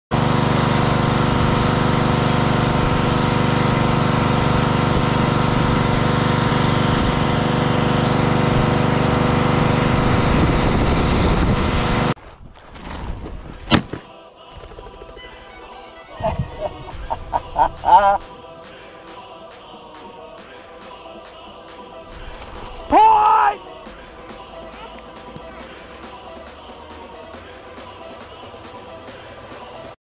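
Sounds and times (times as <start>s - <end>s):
pressure washer engine running: 0.1s - 12.2s.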